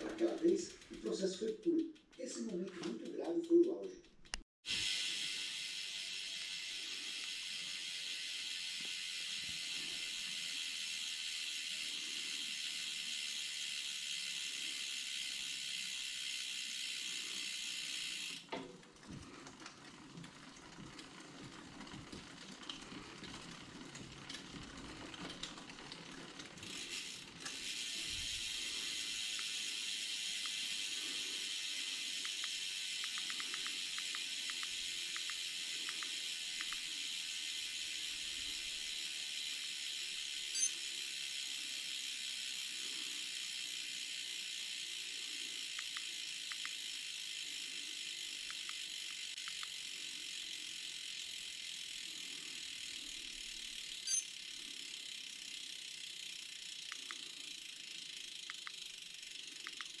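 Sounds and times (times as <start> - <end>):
short sharp ticks: 0.2 - 4.4, 59.6 - 60.0.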